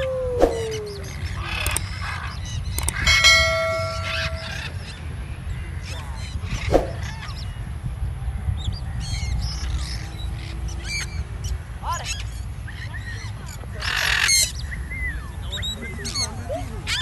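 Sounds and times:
wind rumble on microphone: 0:00.0 - 0:11.8
bell-like chime: 0:03.0 - 0:04.8.

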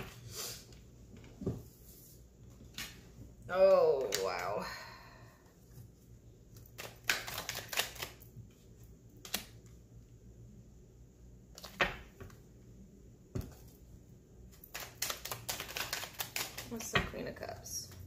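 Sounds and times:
cards snapping while shuffled: 0:06.7 - 0:08.2, 0:09.2 - 0:09.6, 0:14.6 - 0:16.9.

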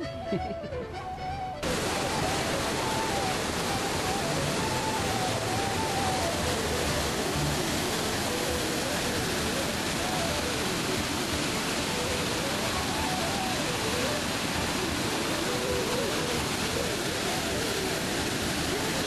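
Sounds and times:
river rushing over rapids: 0:00.0 - 0:19.0.

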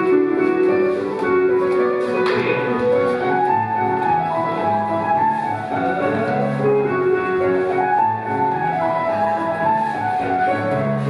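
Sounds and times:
country dance music: 0:00.0 - 0:11.0.

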